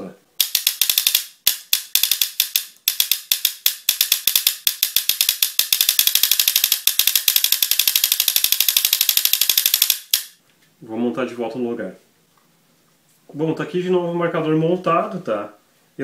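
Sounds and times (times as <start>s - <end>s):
solenoid clicking: 8.5s - 10.4s.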